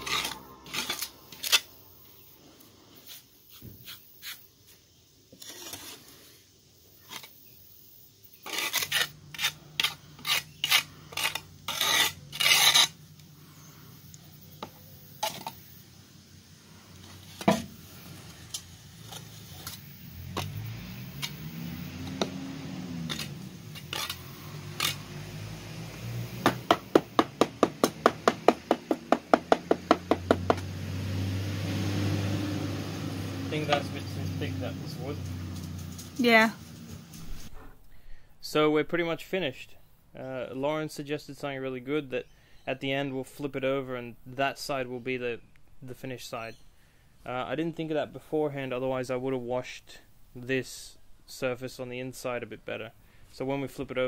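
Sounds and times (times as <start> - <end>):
trowel scraping wet cement: 0.0 - 1.8, 2.9 - 6.4, 7.0 - 7.4, 8.4 - 13.0, 14.6 - 15.7, 17.0 - 25.4.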